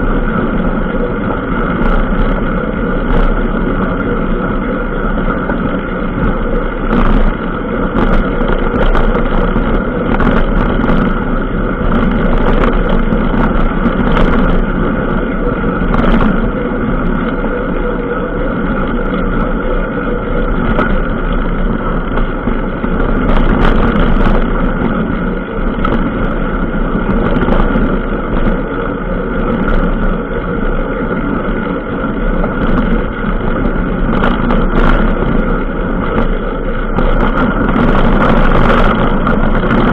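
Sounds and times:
off-road vehicle engine running: 0.0 - 39.9.

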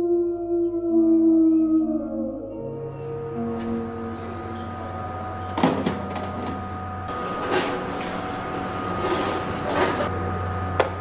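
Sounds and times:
steady hum: 0.0 - 11.0
metal canisters clanking: 5.5 - 10.1.

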